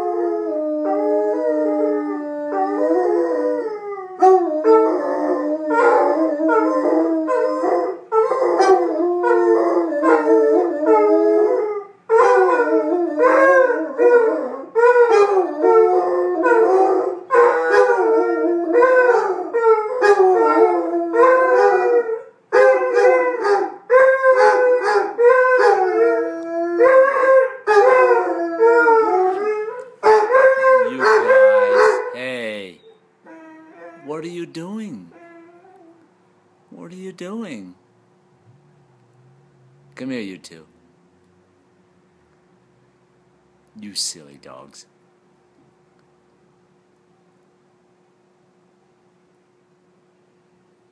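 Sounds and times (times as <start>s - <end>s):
dogs howling: 0.0s - 34.3s, 35.1s - 36.1s.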